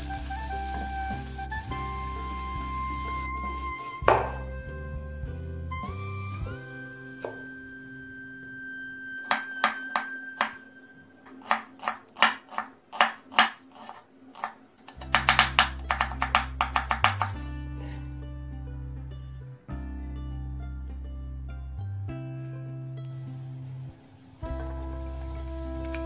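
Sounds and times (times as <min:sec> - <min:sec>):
background music: 0:00.0 - 0:26.0
knife chopping on wooden board: 0:04.1 - 0:04.4, 0:09.3 - 0:10.6, 0:11.3 - 0:17.4.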